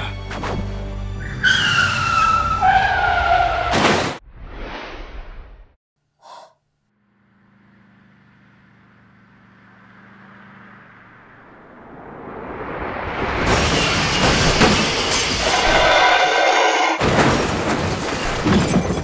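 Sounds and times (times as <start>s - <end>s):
tyres squealing: 14.6s - 17.0s.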